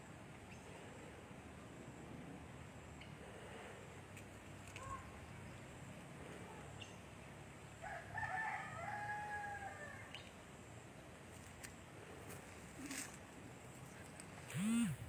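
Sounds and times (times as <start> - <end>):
rooster crowing: 7.8 - 10.1.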